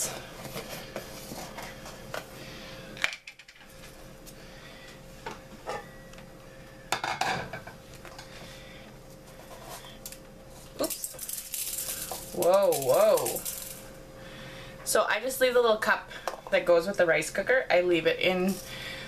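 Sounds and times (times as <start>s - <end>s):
kitchenware knocking and clattering: 7.0s - 7.8s.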